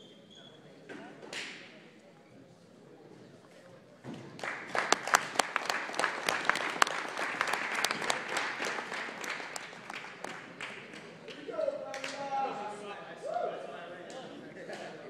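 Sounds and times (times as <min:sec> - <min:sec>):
loud claps close by: 0:04.2 - 0:12.2
small crowd applauding: 0:04.2 - 0:12.5.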